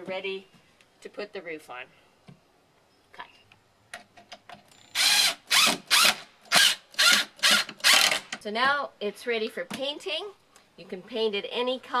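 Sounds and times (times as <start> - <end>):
cordless drill driving screws: 4.7 - 8.3.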